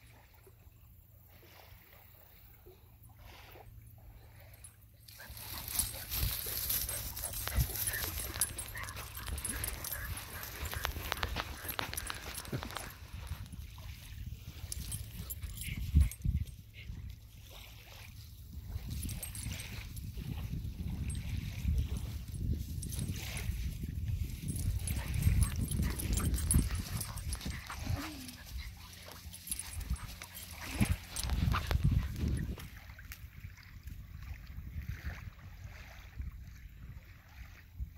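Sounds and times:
puppy footsteps on sand: 5.2s - 13.7s, 21.6s - 32.6s
faint puppy whimpers: 27.7s - 28.8s.

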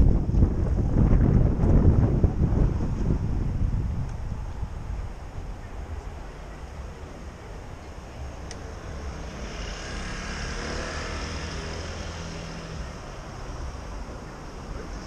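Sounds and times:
city traffic rumble: 0.0s - 15.0s
motor scooter passing: 6.4s - 15.0s.

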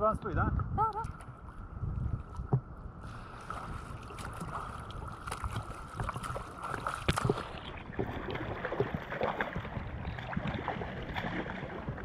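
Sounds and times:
wind noise on microphone: 0.0s - 12.0s
seawater sloshing and splashing: 2.2s - 12.0s
sharp splashes: 3.4s - 12.0s.

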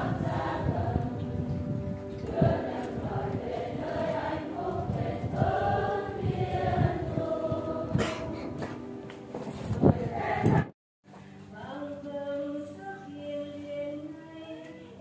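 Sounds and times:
church choir singing a hymn: 0.0s - 1.5s, 2.2s - 8.8s, 9.4s - 10.7s.

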